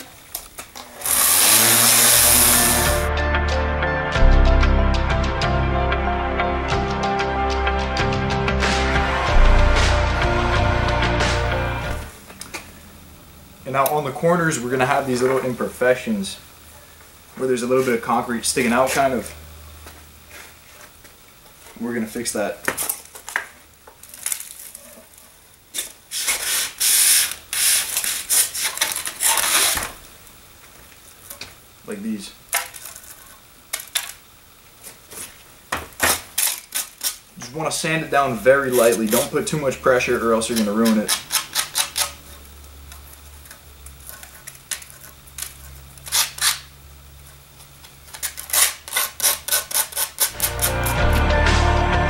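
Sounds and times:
hand sanding concrete: 1.1 - 3.1, 37.6 - 42.0.

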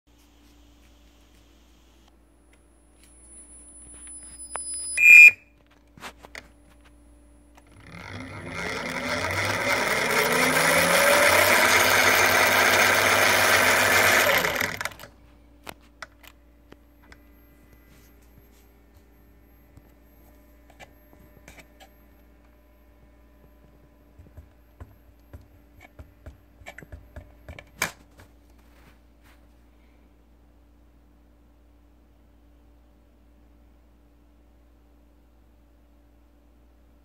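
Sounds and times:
electric motor whining: 7.6 - 15.1.

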